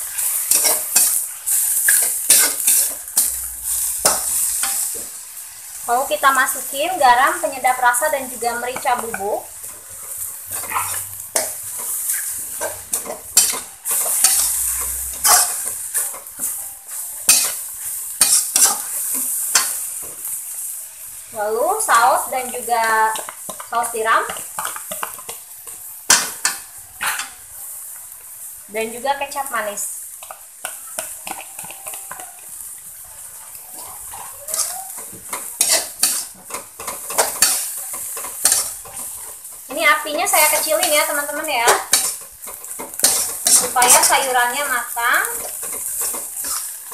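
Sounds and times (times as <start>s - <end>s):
metal spatula scraping a wok: 0.0s - 5.9s, 8.4s - 20.4s, 33.4s - 46.9s
greens sizzling in a wok: 0.0s - 46.9s.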